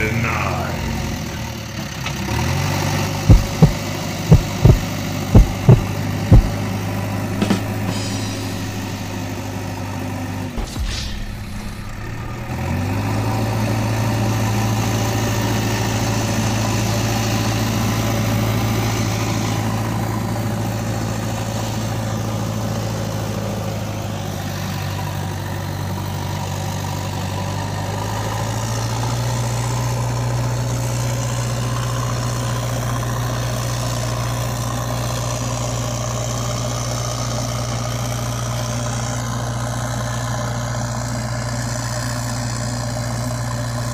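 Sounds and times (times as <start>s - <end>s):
low engine-like drone: 3.1s - 27.7s.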